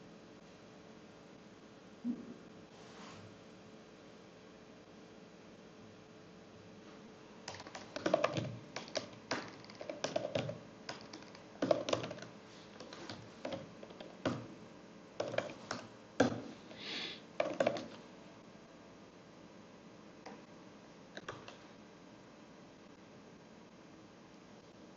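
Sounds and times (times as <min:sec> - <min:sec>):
keyboard key clicks: 0:07.5 - 0:14.5, 0:17.4 - 0:18.0, 0:21.2 - 0:21.6.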